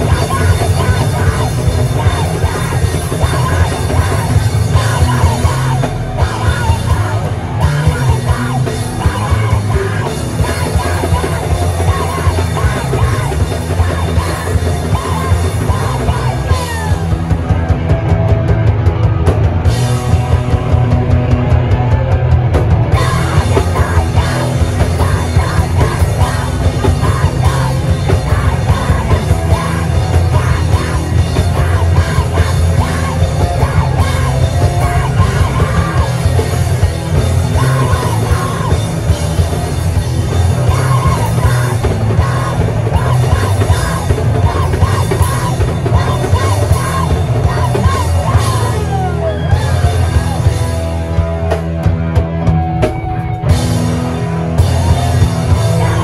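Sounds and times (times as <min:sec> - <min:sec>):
punk rock band playing live: 0:00.0 - 0:56.0
person yelling vocals: 0:23.0 - 0:39.6, 0:40.6 - 0:50.5, 0:54.8 - 0:56.0.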